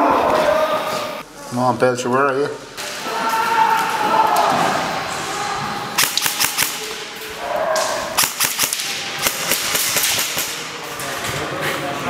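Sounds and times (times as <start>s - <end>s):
airsoft rifle shots: 6.0s - 7.2s, 7.8s - 10.8s.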